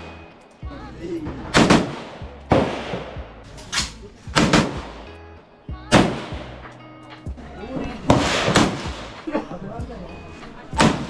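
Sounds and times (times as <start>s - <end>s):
gunshots echoing: 1.3s - 5.2s, 5.9s - 6.7s, 8.1s - 9.3s, 10.8s - 11.0s.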